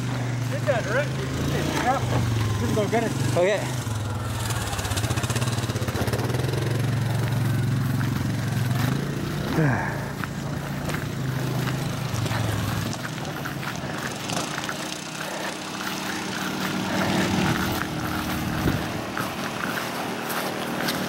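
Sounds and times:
vehicle engines running: 0:00.0 - 0:21.0.

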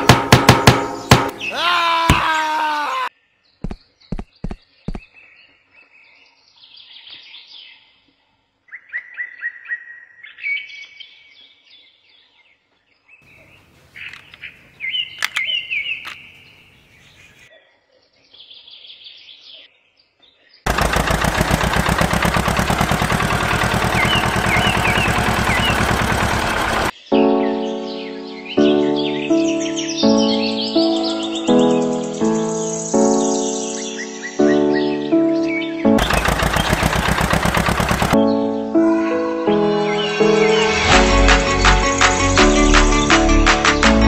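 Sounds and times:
songbirds chirping: 0:00.6 - 0:38.7
sharp clicks: 0:15.2 - 0:16.2
fast rattling engine noise: 0:20.7 - 0:26.9, 0:36.0 - 0:38.2.

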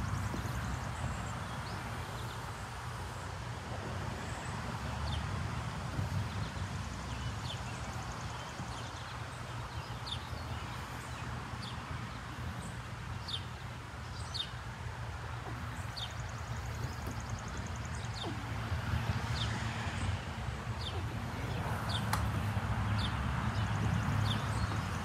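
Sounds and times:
bird chirping: 0:06.3 - 0:25.0.

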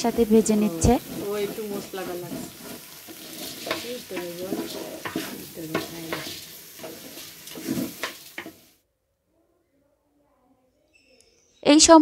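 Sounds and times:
food sizzling in oil: 0:00.0 - 0:08.8
spatula scraping metal pot: 0:00.0 - 0:08.8.

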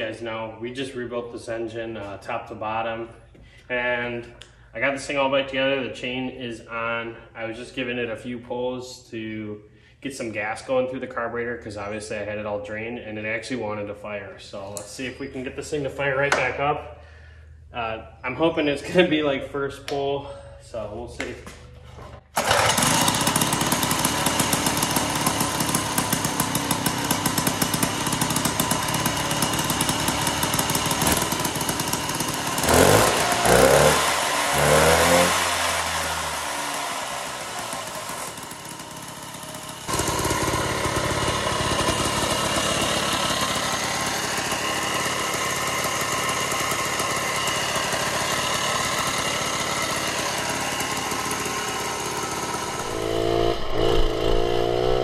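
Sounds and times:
two-stroke engine revving: 0:22.4 - 0:55.0.

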